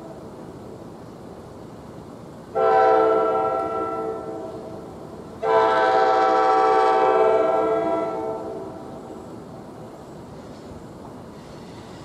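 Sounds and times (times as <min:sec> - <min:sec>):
train air horn blasts: 0:02.6 - 0:04.7, 0:05.4 - 0:09.0.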